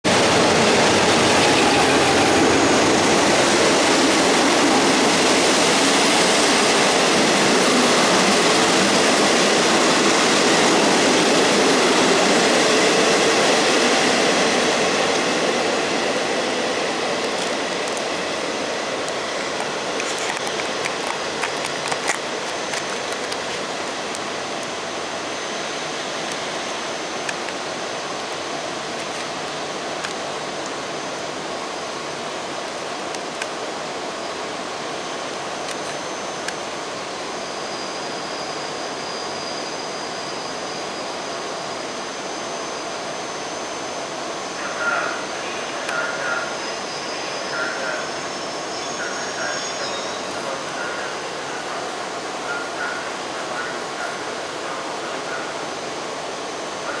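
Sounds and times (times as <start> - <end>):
train rushing rumble: 0.0 - 34.2.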